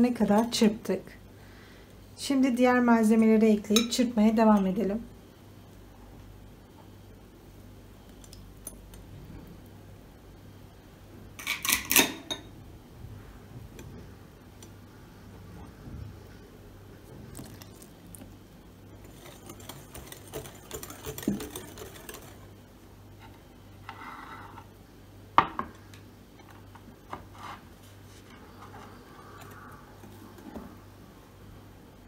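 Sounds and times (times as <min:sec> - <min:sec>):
whisk clattering in glass bowl: 0:19.0 - 0:22.5.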